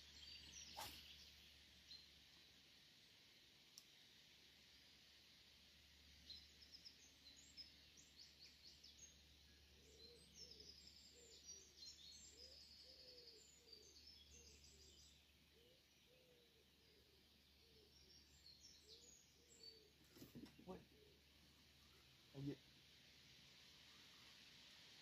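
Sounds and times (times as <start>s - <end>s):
birds chirping and trilling: 0.0s - 2.1s, 6.3s - 22.6s
faint background hum: 0.0s - 25.0s.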